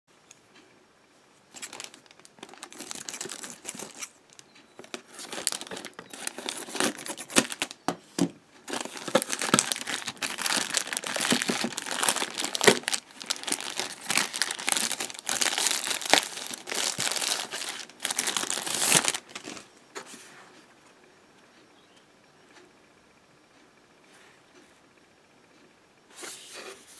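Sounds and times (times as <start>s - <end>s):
plastic wrapping crinkling: 1.5s - 8.0s, 8.6s - 19.7s.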